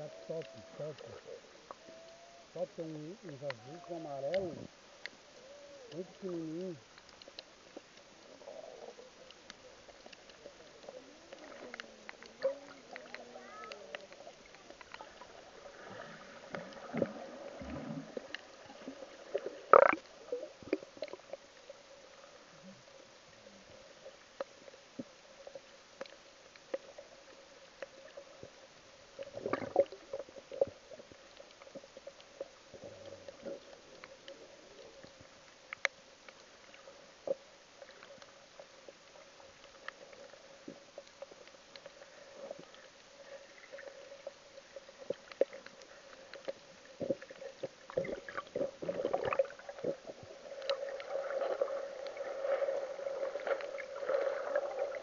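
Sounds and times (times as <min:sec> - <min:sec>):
underwater hum: 0:00.0 - 0:55.0
underwater clicks and knocks: 0:19.4 - 0:21.3.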